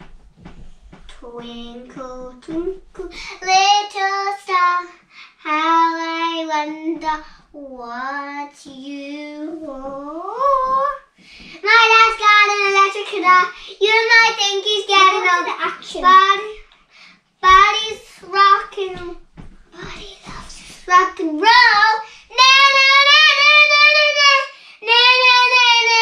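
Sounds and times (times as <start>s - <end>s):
girls singing unaccompanied: 1.1s - 7.2s, 7.9s - 16.7s, 17.4s - 26.0s
singers breathing: 3.1s - 3.4s, 11.2s - 11.6s, 16.7s - 17.3s, 22.0s - 22.3s.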